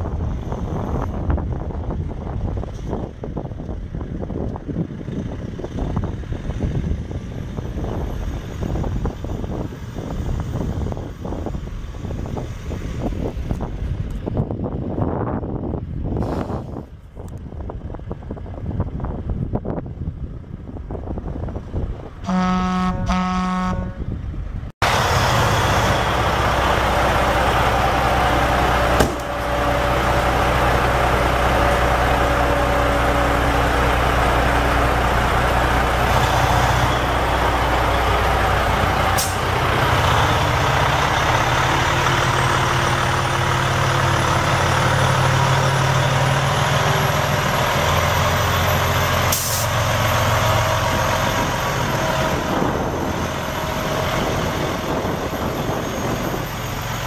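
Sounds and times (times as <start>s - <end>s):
truck diesel engine running: 24.1s - 57.0s.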